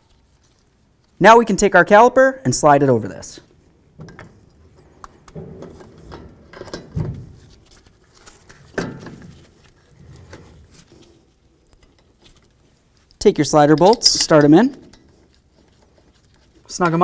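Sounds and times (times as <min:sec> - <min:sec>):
metal scraping and clunking: 0:03.9 - 0:12.3.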